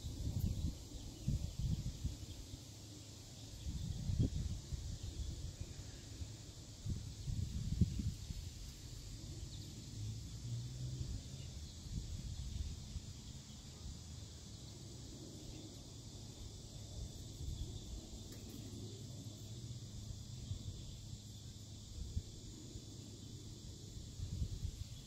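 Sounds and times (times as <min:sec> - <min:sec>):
wind buffeting microphone: 0:00.0 - 0:02.3, 0:03.6 - 0:05.6, 0:06.9 - 0:08.6
steady high hiss: 0:00.0 - 0:25.0.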